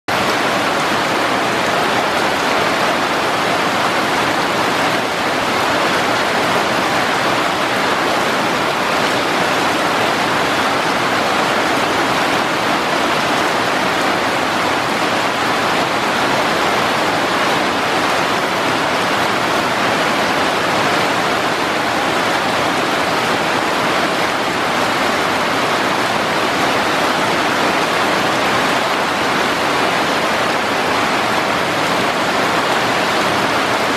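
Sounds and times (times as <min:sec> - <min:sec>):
heavy rain on foliage: 0:00.1 - 0:33.9.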